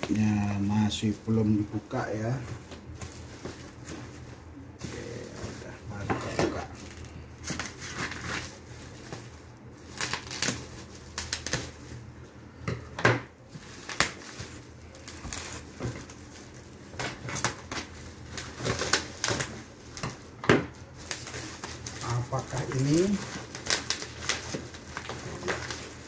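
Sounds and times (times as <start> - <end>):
bubble wrap crinkling and crackling: 0.0 - 12.6, 13.3 - 26.0
scissors cutting bubble wrap: 4.8 - 11.9, 13.5 - 26.0.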